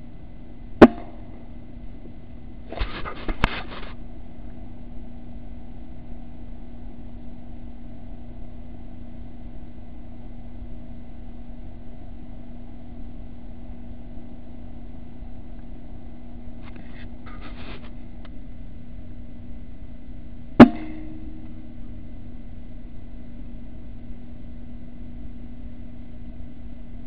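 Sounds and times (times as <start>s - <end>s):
low mechanical hum: 0.0s - 27.0s
handling noises: 2.7s - 4.0s.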